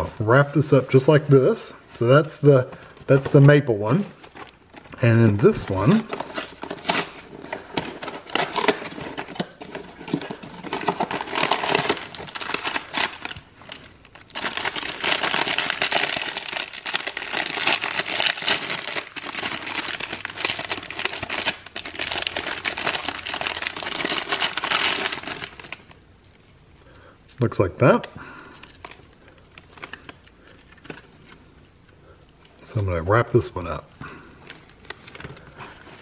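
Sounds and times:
plastic wrapper crinkling: 0:02.6 - 0:26.6, 0:28.5 - 0:31.6, 0:34.4 - 0:36.0.

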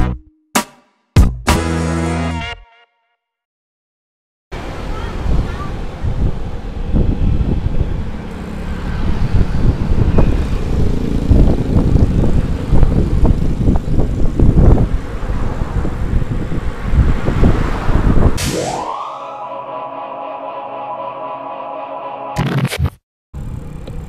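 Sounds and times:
motorbikes and cars passing: 0:04.6 - 0:18.4, 0:23.4 - 0:24.0
wind buffeting microphone: 0:05.2 - 0:08.3, 0:08.9 - 0:18.4.

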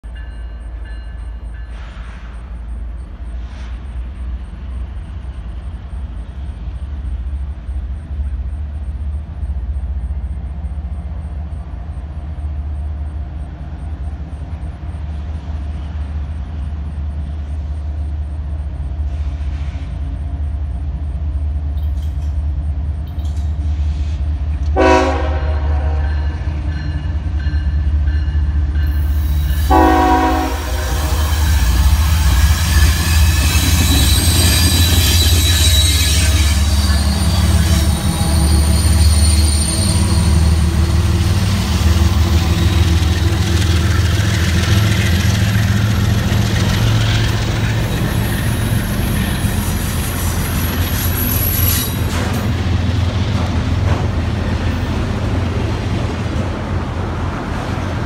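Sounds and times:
locomotive engine rumble: 0:00.3 - 0:58.0
train air horn: 0:24.7 - 0:26.3, 0:29.4 - 0:37.6.

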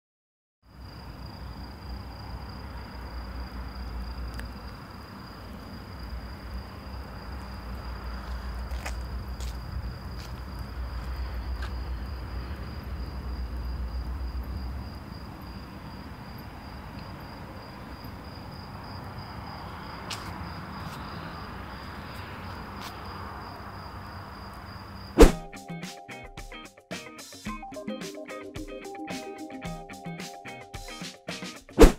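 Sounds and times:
crickets trilling: 0:00.7 - 0:25.8.

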